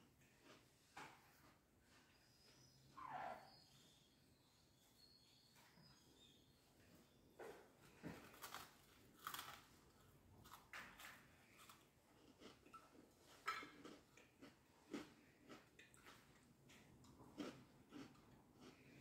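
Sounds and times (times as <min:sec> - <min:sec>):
person chewing crunchy food: 0:00.0 - 0:02.0, 0:07.9 - 0:19.0.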